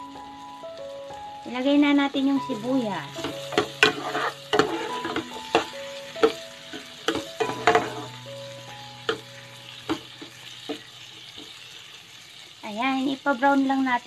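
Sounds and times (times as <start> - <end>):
food sizzling in butter: 0.0 - 14.0
spoon scraping and knocking pan: 3.1 - 8.2, 9.0 - 11.6.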